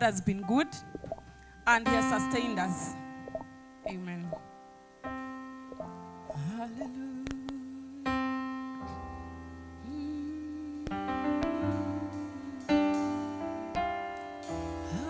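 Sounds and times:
electric keyboard chords: 0.0s - 15.0s.

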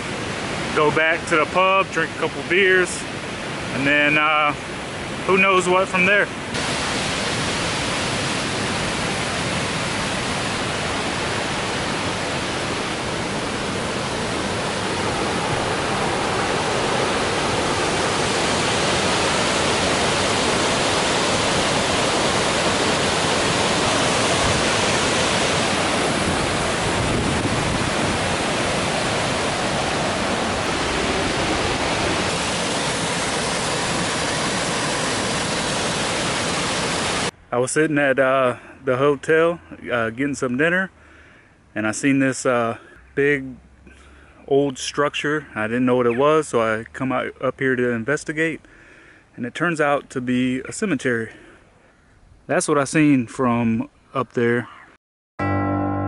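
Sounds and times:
water rushing over a cascade: 0.0s - 37.3s.

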